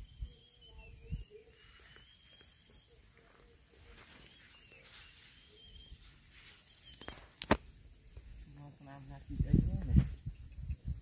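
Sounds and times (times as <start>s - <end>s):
bird calling high and wavering: 0.0s - 7.4s
faint outdoor ambience: 0.0s - 11.0s.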